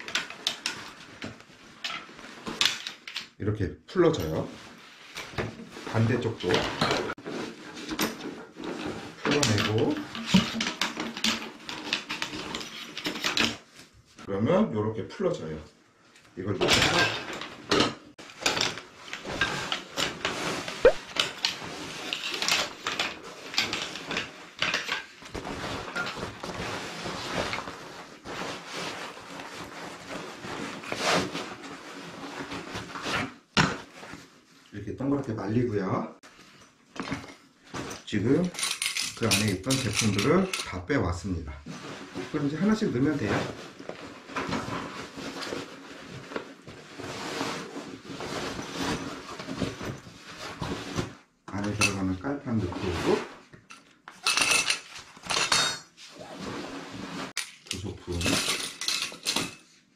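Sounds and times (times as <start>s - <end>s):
fabric rustling: 0.0s - 3.1s, 4.3s - 14.3s, 17.5s - 34.8s, 41.6s - 57.4s
metal poles clicking and knocking: 57.4s - 59.6s.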